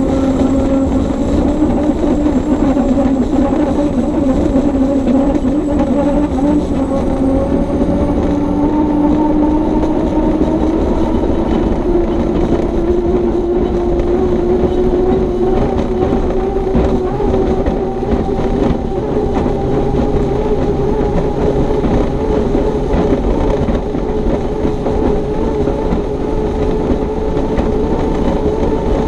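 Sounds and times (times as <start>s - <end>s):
rough low rumble: 0.0s - 29.0s
turbine engine running hard: 0.0s - 29.0s.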